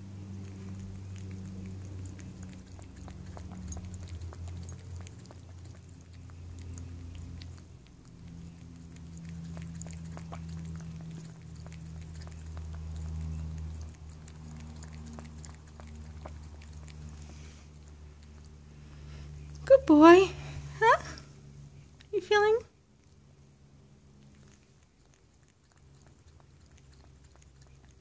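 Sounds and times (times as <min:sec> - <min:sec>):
cat lapping liquid: 0:00.0 - 0:19.6, 0:23.9 - 0:28.0
low steady hum: 0:00.0 - 0:28.0.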